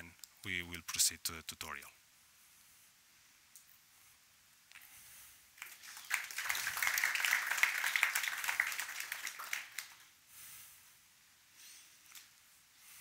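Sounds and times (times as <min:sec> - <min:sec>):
small audience applauding: 0:05.6 - 0:10.1.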